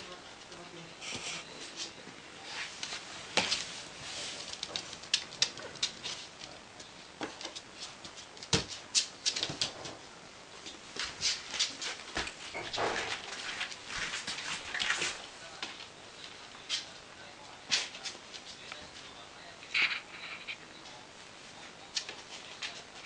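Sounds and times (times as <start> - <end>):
paws clicking on wooden floor: 2.8 - 10.0.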